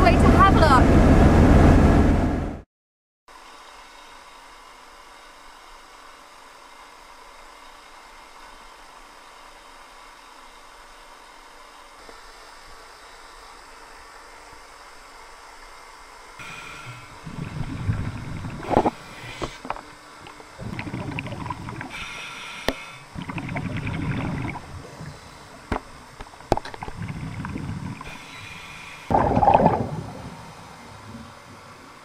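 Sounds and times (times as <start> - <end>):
faint hissing: 16.4 - 32.0
underwater bubbling and rushing: 16.4 - 32.0.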